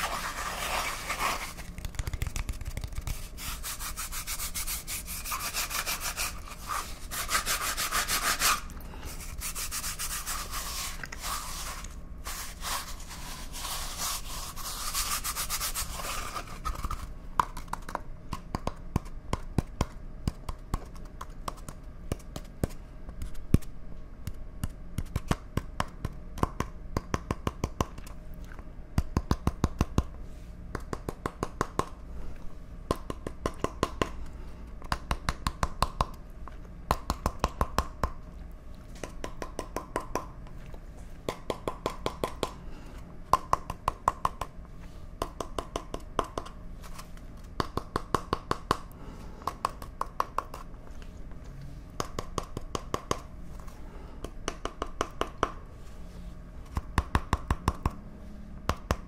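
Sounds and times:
cardboard tube scratchy rustle: 0.0 - 1.7.

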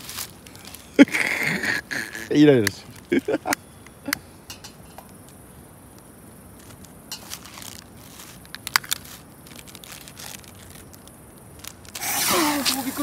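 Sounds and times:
plastic wrapping crinkling: 0.0 - 1.1, 6.6 - 13.0.

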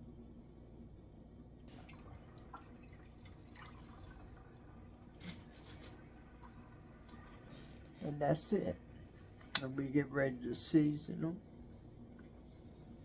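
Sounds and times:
water drips and splashes: 1.7 - 7.9
water draining from sink: 1.7 - 8.0.

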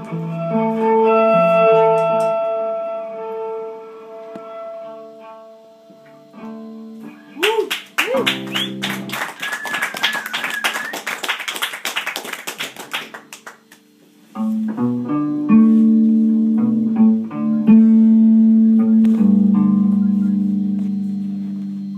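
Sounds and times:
whistle from audience: 7.2 - 11.5
applause: 7.4 - 13.9.

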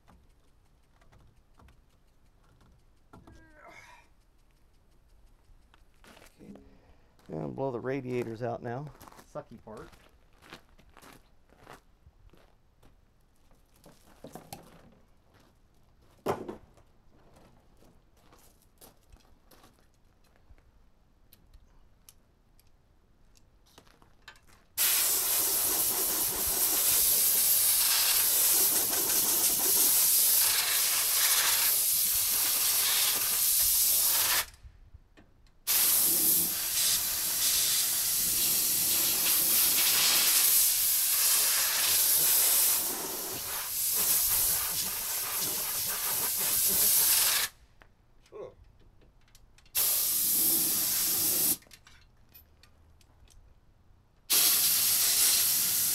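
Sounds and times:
compressed air blow gun hissing: 24.8 - 34.5, 35.7 - 47.6, 49.7 - 51.6, 54.3 - 55.9.

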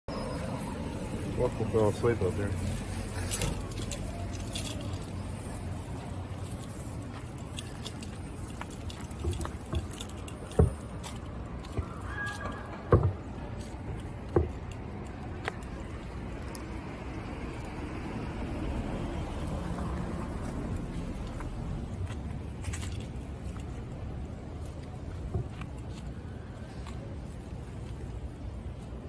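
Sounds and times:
leash jingling: 1.2 - 16.6.

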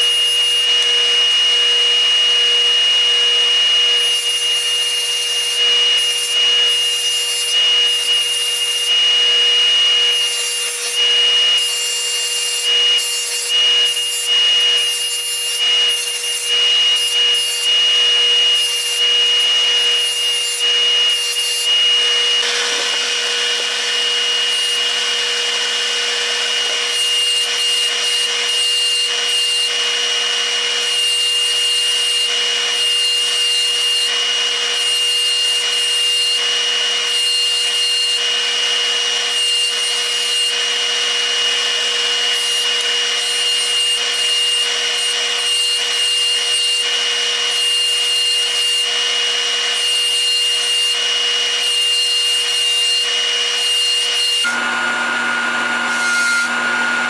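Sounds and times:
polishing motor humming: 0.0 - 30.9, 54.4 - 57.0.

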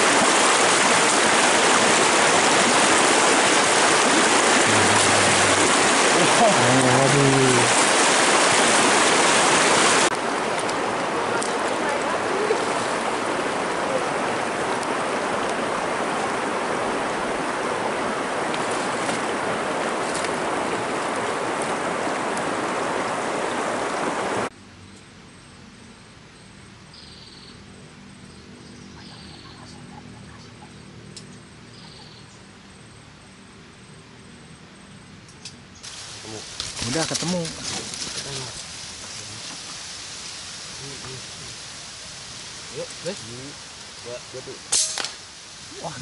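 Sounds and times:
river water rushing over stones: 0.0 - 24.5, 35.9 - 46.0.

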